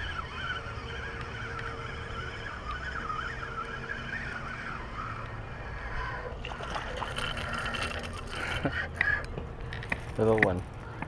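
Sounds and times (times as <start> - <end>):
rustling and splashing: 6.4 - 8.7.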